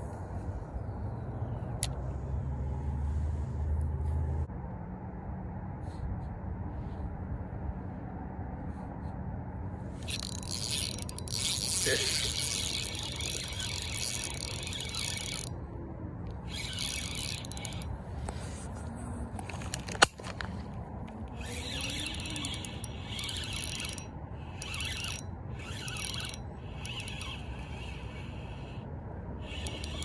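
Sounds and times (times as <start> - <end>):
fishing reel gears rasping: 9.9 - 15.6, 16.3 - 18.4, 21.1 - 30.0.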